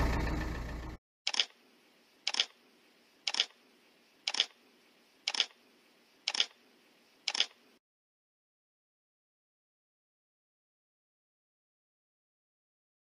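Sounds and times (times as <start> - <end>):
camera shutter double clicks: 1.3 - 1.6, 2.3 - 2.6, 3.3 - 3.6, 4.3 - 4.6, 5.3 - 5.6, 6.3 - 6.6, 7.3 - 7.6
faint hiss: 1.5 - 7.8.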